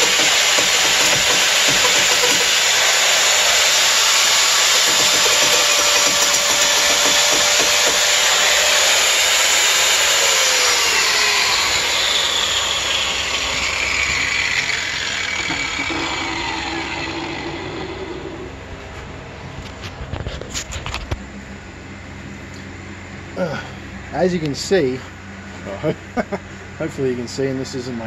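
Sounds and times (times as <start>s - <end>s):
angle grinder cutting wood: 0.0s - 18.6s
grinder whine winding down: 0.0s - 18.8s.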